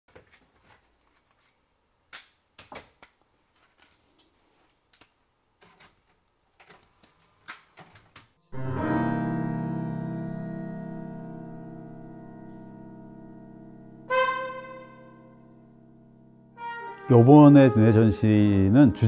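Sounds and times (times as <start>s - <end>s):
plastic clicks and clacks: 4.9s - 8.3s
held piano-like chord: 8.5s - 19.0s.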